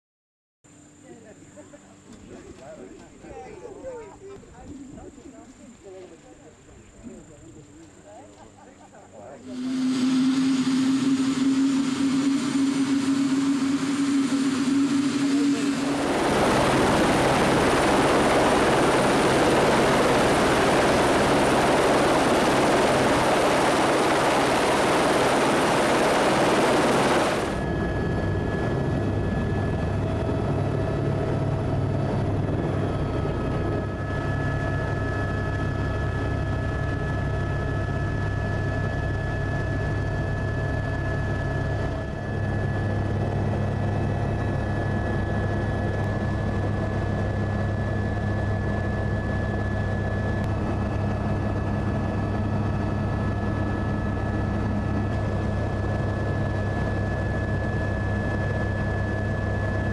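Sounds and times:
helicopter cabin drone: 0.7s - 59.9s
helicopter turbine whine: 0.7s - 59.9s
rotor wash rush: 9.5s - 27.6s.

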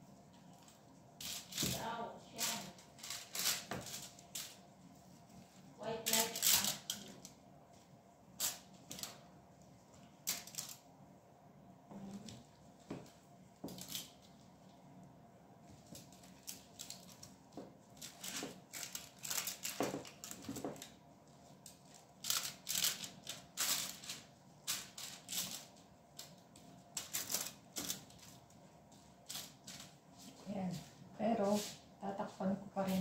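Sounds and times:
aluminium foil crinkling: 0.4s - 4.7s, 5.8s - 7.4s, 8.4s - 9.2s, 10.0s - 10.8s, 13.7s - 14.4s, 15.8s - 28.4s, 29.2s - 30.0s.

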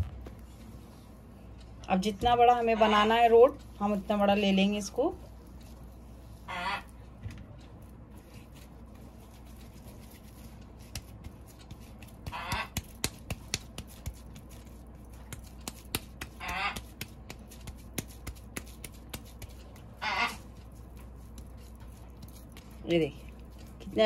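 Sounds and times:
hands working dough: 0.0s - 24.0s
honking animal call: 6.5s - 6.9s, 20.0s - 20.4s.

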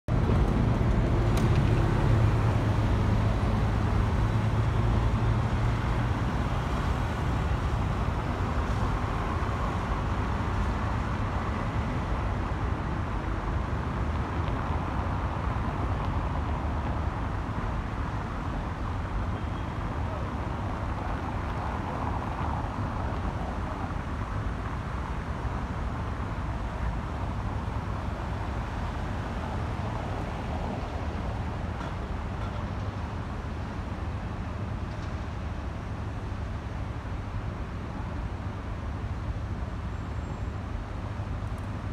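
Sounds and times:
rumble of passing vehicles: 0.1s - 41.9s.

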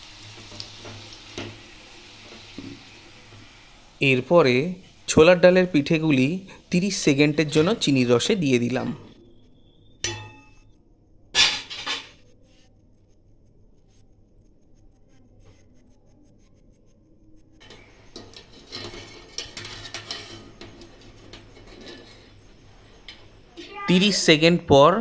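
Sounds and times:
metal utensil clinking on pot: 10.0s - 10.6s.

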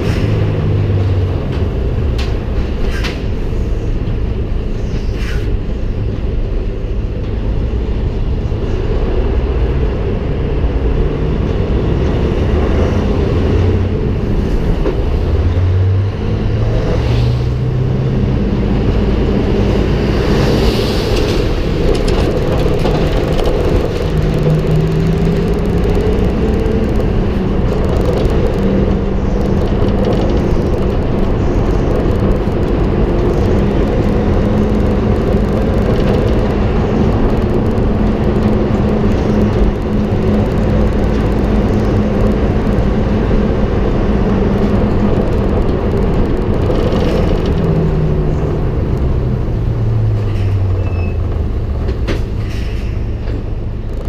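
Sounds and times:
tyre and road noise: 0.0s - 54.0s
truck diesel engine running: 17.4s - 53.9s.

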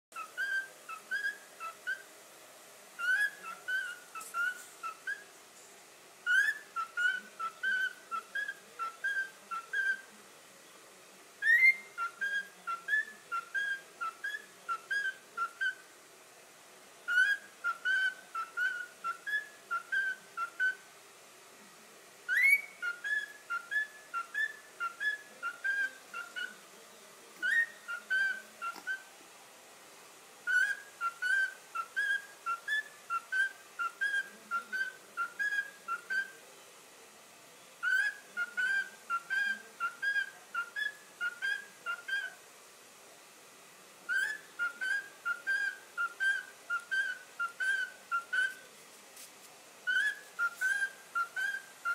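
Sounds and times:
cockatiel whistling: 0.2s - 2.1s, 3.0s - 5.3s, 6.2s - 10.1s, 11.4s - 15.8s, 17.1s - 20.8s, 22.3s - 26.6s, 27.4s - 29.0s, 30.5s - 36.4s, 37.8s - 42.4s, 44.1s - 48.6s, 49.8s - 51.9s.

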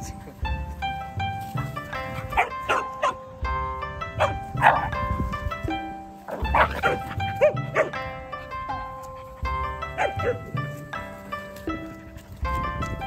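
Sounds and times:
background music: 0.0s - 13.0s
dog barking: 2.3s - 3.2s, 4.2s - 5.0s, 6.3s - 8.0s, 10.0s - 10.5s.

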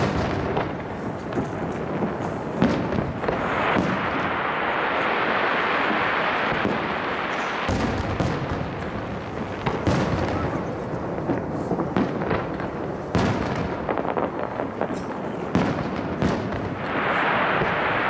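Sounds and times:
dense steady hiss: 0.0s - 18.0s.

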